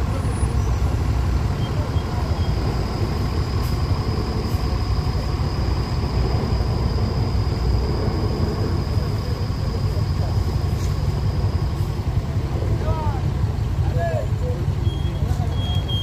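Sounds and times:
high whine: 0:00.0 - 0:13.2
bus diesel engine rumbling: 0:00.0 - 0:16.0.

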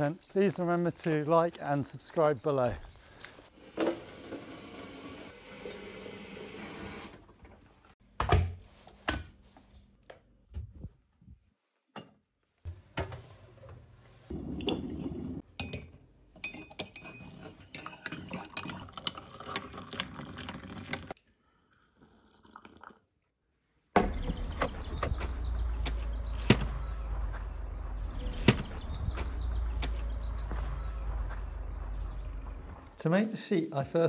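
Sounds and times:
water pouring into mug: 0:18.3 - 0:21.1, 0:21.9 - 0:23.0.

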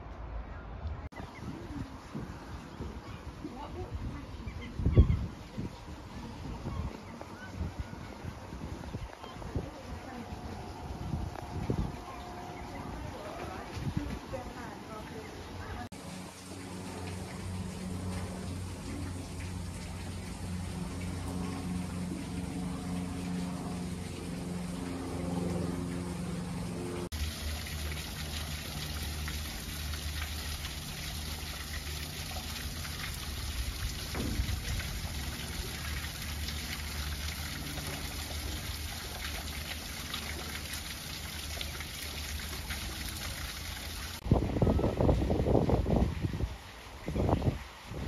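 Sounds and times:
low hum: 0:09.6 - 0:13.9, 0:15.9 - 0:40.6
waterfall splashing into pool: 0:15.8 - 0:24.9, 0:27.0 - 0:48.0.

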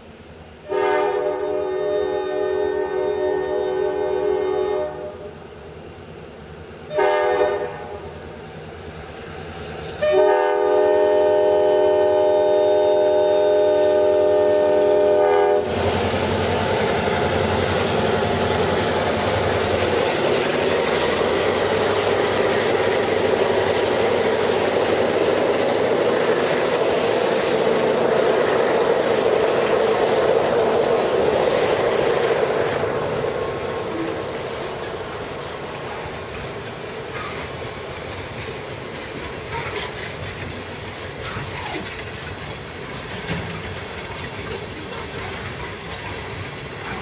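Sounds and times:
diesel locomotives roaring: 0:00.2 - 0:47.0
locomotive air horn: 0:00.6 - 0:05.3, 0:06.9 - 0:08.1, 0:10.0 - 0:15.8.

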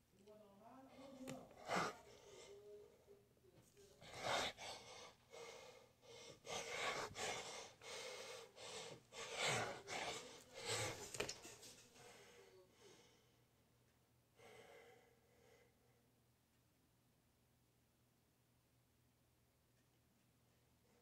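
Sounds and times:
man breathing hard: 0:01.0 - 0:02.7, 0:04.0 - 0:13.3, 0:14.4 - 0:16.0.

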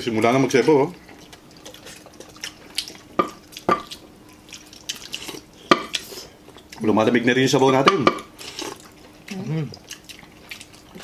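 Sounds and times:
wet sucking and chewing: 0:01.0 - 0:06.8, 0:08.4 - 0:11.0.

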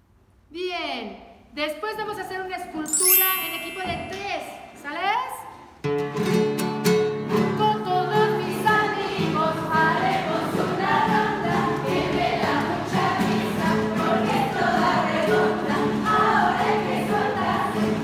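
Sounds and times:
children's song with backing: 0:02.9 - 0:04.7, 0:07.6 - 0:18.0.

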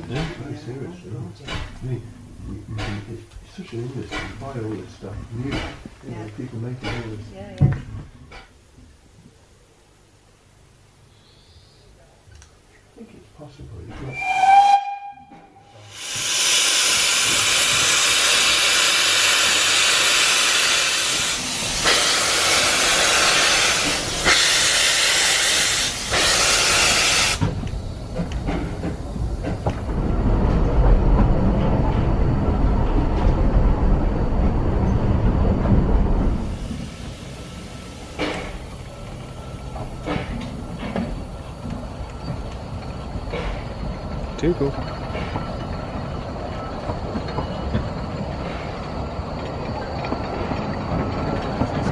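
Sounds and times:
steam locomotive hissing: 0:14.0 - 0:30.7, 0:36.0 - 0:51.3.

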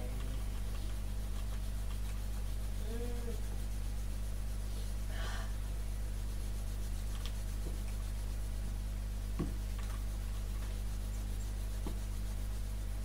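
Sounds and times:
soft vocal hum: 0:00.0 - 0:08.6
steady low hum: 0:00.0 - 0:13.0.

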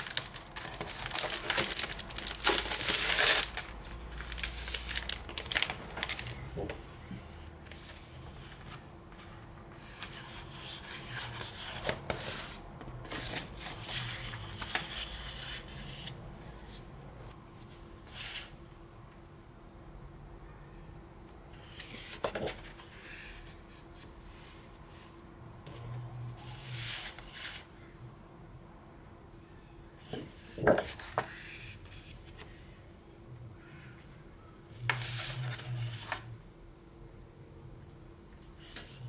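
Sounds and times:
paper rustling and crinkling: 0:00.0 - 0:06.9, 0:07.6 - 0:16.2.

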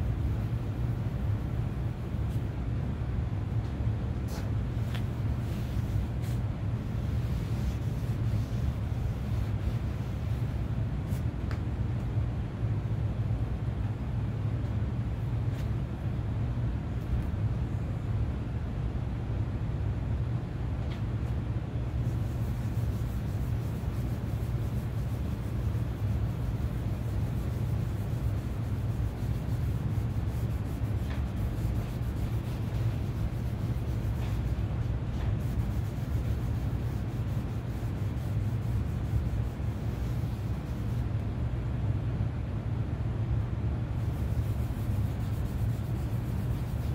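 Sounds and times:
cloth rag scrubbing wood: 0:04.3 - 0:11.2, 0:22.0 - 0:41.1, 0:44.0 - 0:46.9.

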